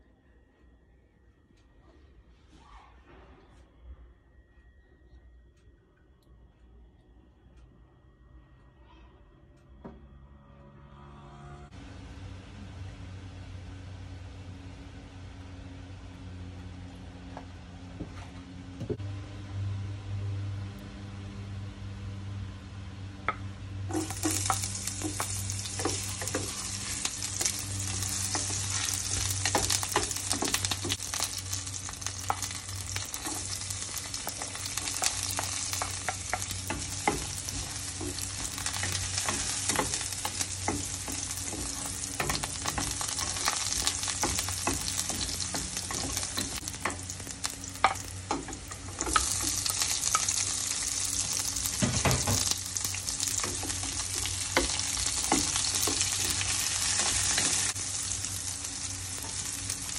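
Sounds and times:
low steady hum: 0.0s - 59.9s
ginger sizzling in oil: 23.9s - 59.9s.

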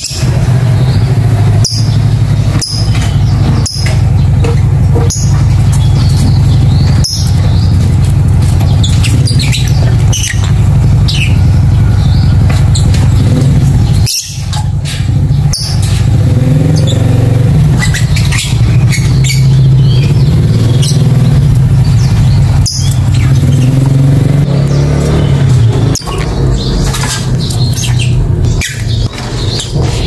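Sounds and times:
lovebird chirping: 8.6s - 30.0s.

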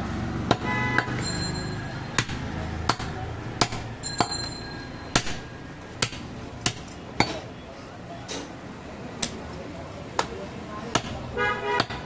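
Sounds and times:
cleaver chopping on wooden block: 0.4s - 1.2s, 2.2s - 4.4s, 5.1s - 7.5s, 10.2s - 11.2s, 11.8s - 12.0s.

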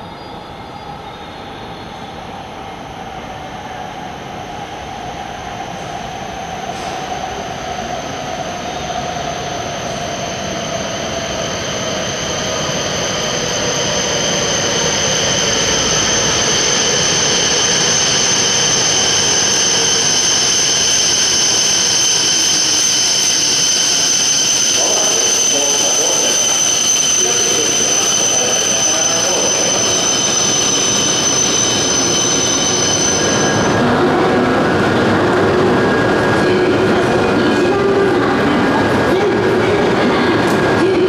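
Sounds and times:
train pulling into station: 0.0s - 41.0s
falling whine: 6.5s - 37.4s
high-pitched squeal: 6.6s - 38.1s.

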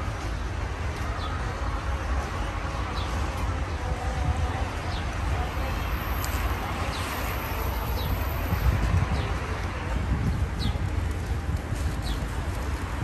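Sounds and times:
road traffic: 0.0s - 13.0s
wind: 0.0s - 13.0s.

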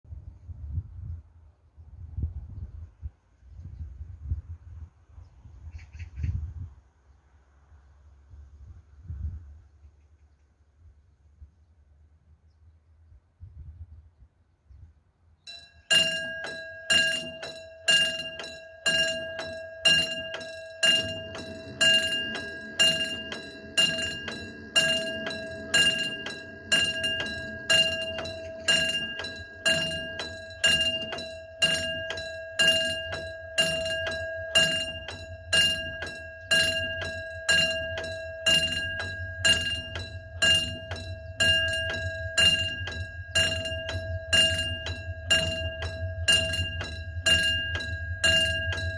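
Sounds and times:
railway warning bell ringing: 15.4s - 48.9s
train rumble: 15.5s - 48.9s.

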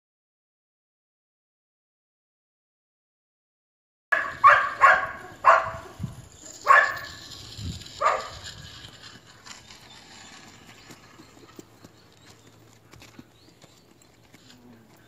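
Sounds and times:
dog barking: 4.1s - 6.0s, 6.6s - 7.2s, 8.0s - 8.4s.

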